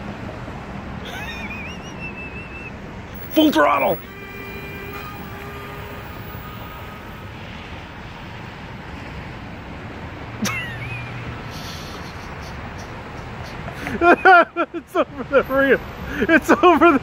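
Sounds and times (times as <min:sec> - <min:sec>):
road traffic hiss: 0:00.0 - 0:17.0
model plane motors whining: 0:03.2 - 0:07.5.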